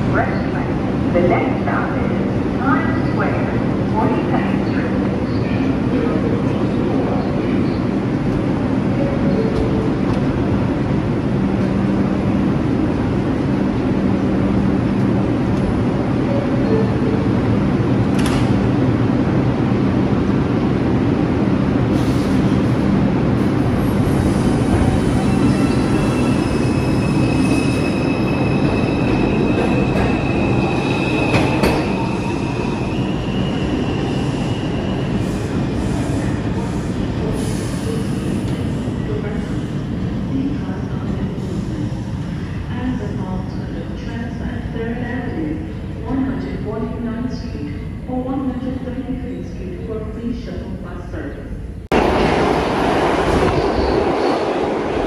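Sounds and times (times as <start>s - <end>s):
train wheels rumbling on rails: 1.8s - 44.7s.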